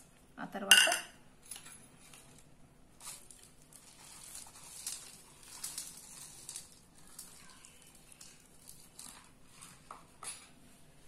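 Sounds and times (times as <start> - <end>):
dry pieces rustling patter: 3.0 - 10.4.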